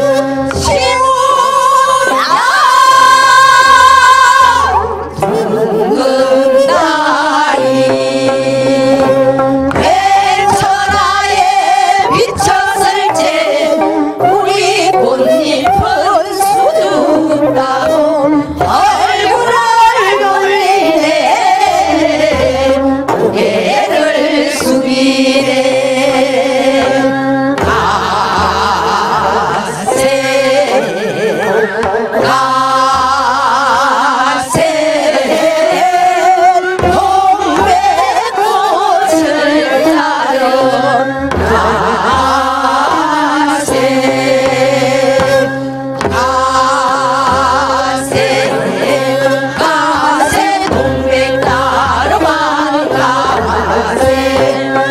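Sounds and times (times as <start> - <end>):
women singing folk song: 0.0 - 54.9
accompaniment with low beat: 39.2 - 54.9.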